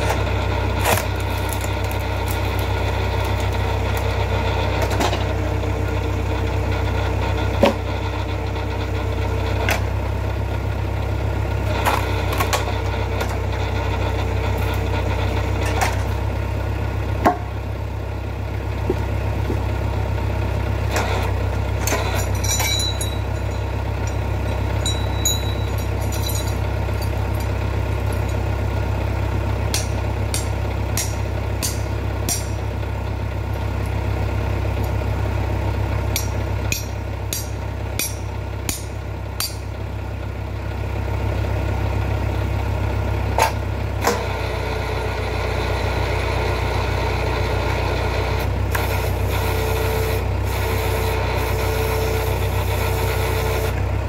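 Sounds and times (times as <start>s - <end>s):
engine running with low hum: 0.0s - 54.0s
sharp cracks and knocks: 0.8s - 4.1s
higher steady hum: 17.2s - 39.8s.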